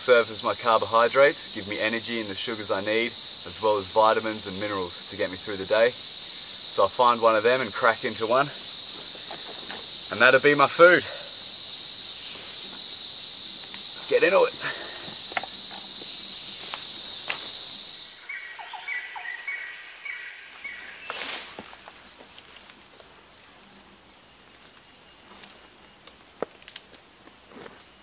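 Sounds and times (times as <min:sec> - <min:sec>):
insects droning: 0:00.0 - 0:28.0
evenly spaced chirps: 0:11.3 - 0:20.9
sharp clicks: 0:13.6 - 0:13.9.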